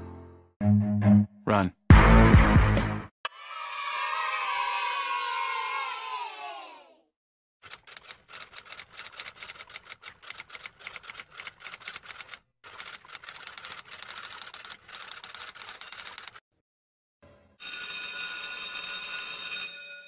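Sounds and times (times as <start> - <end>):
rapid sharp clicks: 7.6 - 16.4.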